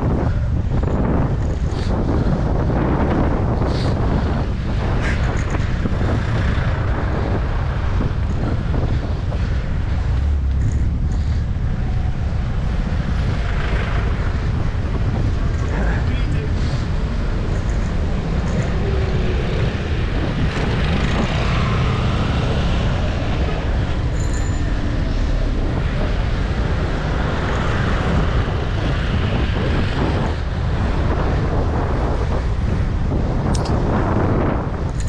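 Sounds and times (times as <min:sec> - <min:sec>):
city traffic noise: 0:00.0 - 0:35.0
wind rumble on microphone: 0:00.0 - 0:35.0
high-pitched ring: 0:24.1 - 0:24.7.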